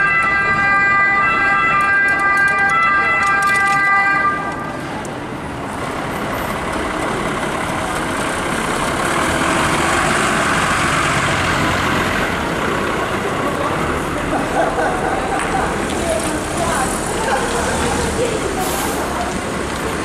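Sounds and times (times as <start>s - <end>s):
truck diesel engine running: 5.3s - 20.0s.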